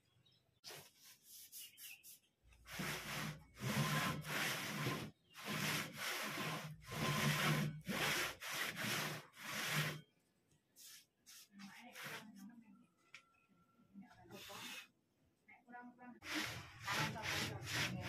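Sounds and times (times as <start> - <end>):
wood sliding on wood: 2.7 - 10.0, 16.3 - 18.0.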